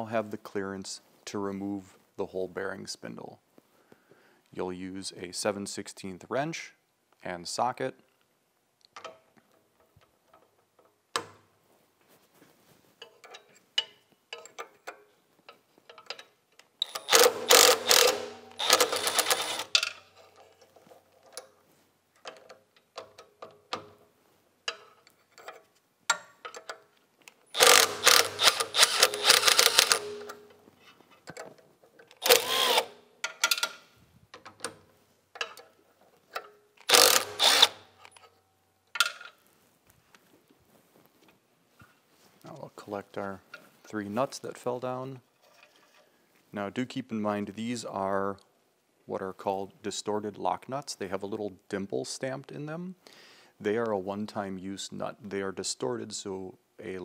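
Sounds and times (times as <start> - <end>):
small clicks of tool handling: 8.1 - 11.4, 13.0 - 21.6, 22.2 - 39.4
impact wrench hammering: 16.9 - 19.8, 27.6 - 30.5, 36.9 - 37.8.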